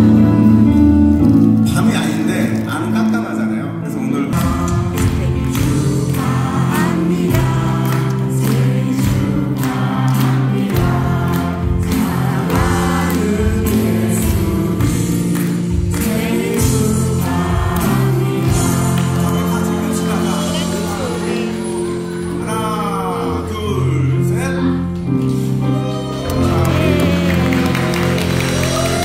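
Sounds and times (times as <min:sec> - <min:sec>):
instrumental accompaniment: 0:00.0 - 0:29.0
choir singing: 0:04.3 - 0:23.5, 0:25.6 - 0:29.0.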